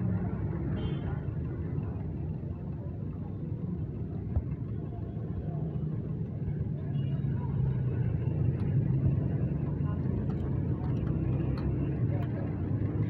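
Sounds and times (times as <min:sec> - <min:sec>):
low rumbling background noise: 0:00.0 - 0:13.0.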